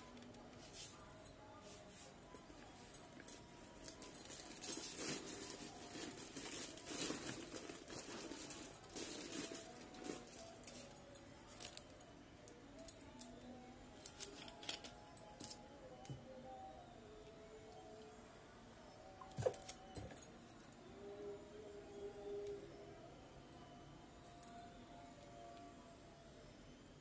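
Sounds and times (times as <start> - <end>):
rustling of handbag: 0.6 - 11.9.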